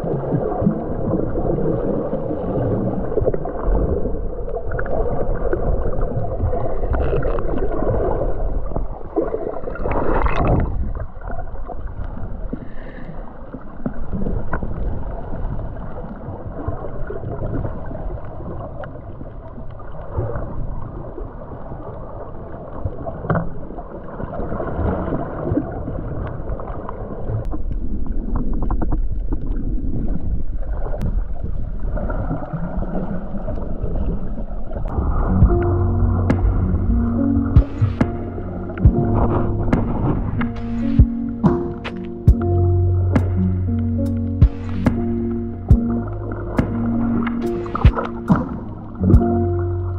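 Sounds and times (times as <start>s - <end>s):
underwater sloshing and gurgling: 0.0s - 49.9s.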